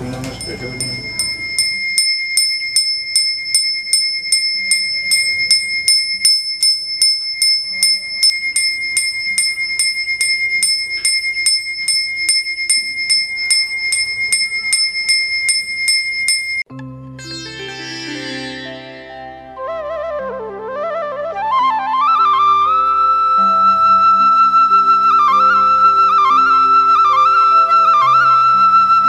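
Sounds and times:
hand bell ringing: 0.0s - 16.7s.

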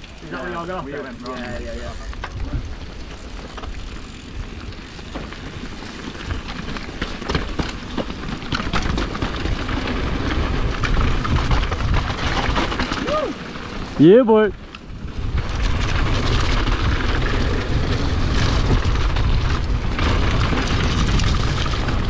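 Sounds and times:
tyres crunching over gravel: 0.0s - 14.0s
bike clicking and rattling: 0.0s - 22.0s
wind rumble on microphone: 1.2s - 22.0s.

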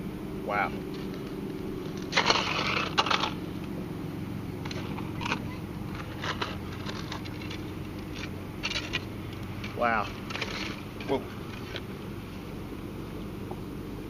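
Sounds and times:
steady low hum: 0.0s - 14.0s
scraping and rustling in net: 1.0s - 3.4s.

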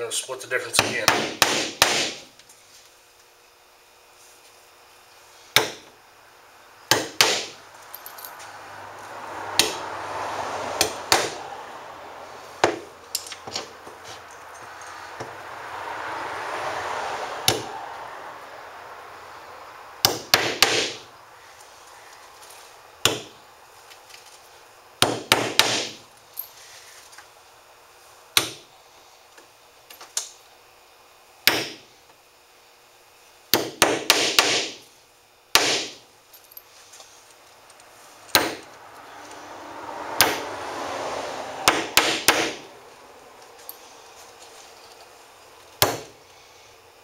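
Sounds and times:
hammer driving nails: 0.8s - 2.3s, 6.9s - 7.6s, 10.8s - 11.4s, 20.0s - 21.0s, 25.0s - 26.0s, 33.5s - 34.8s, 35.6s - 36.0s, 38.3s - 38.7s, 41.6s - 42.6s, 45.8s - 46.1s.

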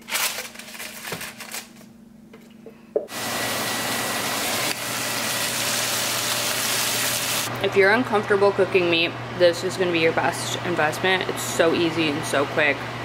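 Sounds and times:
blender running: 3.1s - 7.6s.

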